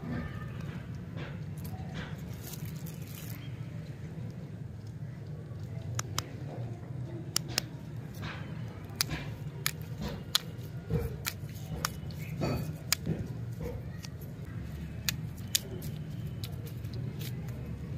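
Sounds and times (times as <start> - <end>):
plastic wrappers clicking and rustling: 0.6 - 5.9, 7.4 - 17.9.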